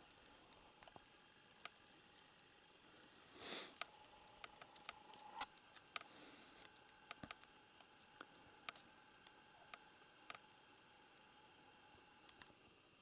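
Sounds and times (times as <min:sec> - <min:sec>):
soft breath-like puff: 0:03.3 - 0:03.8.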